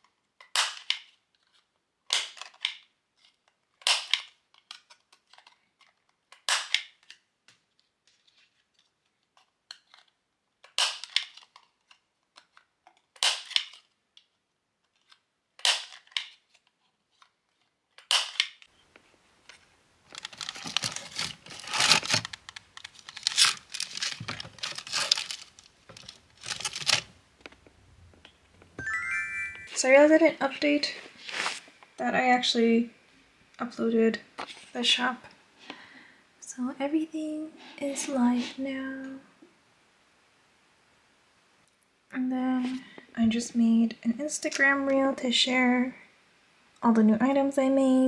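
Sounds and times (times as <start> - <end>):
plastic sleeves rustling: 0.0 - 28.7, 30.1 - 32.0
punch snapping through cards: 0.4 - 1.1, 3.8 - 5.5, 6.3 - 7.2, 9.7 - 13.8, 14.9 - 16.6, 18.0 - 18.6.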